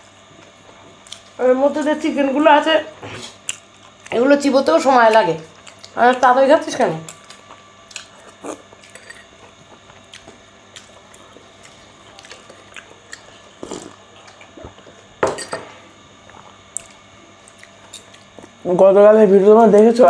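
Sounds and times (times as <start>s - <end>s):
cutlery clinking on plates: 15.2s - 15.7s.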